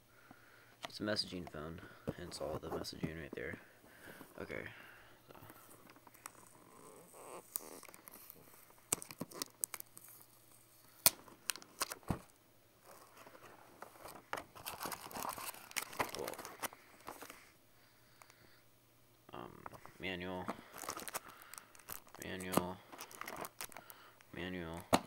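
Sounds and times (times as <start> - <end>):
cardboard packaging rustling: 1.2 - 4.6, 5.3 - 17.6, 19.7 - 24.0.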